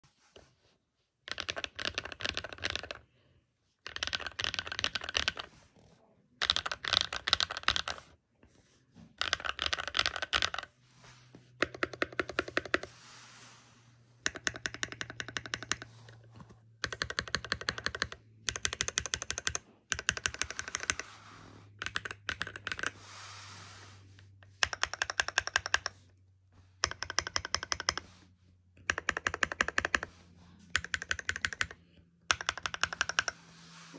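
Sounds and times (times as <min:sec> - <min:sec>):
mechanical keyboard typing: 0:01.3 - 0:03.0, 0:03.8 - 0:05.5, 0:06.4 - 0:08.1, 0:09.2 - 0:10.7, 0:11.6 - 0:12.9, 0:14.2 - 0:16.0, 0:16.8 - 0:21.1, 0:21.8 - 0:23.0, 0:24.5 - 0:26.1, 0:26.8 - 0:28.1, 0:28.8 - 0:30.1, 0:30.7 - 0:33.4.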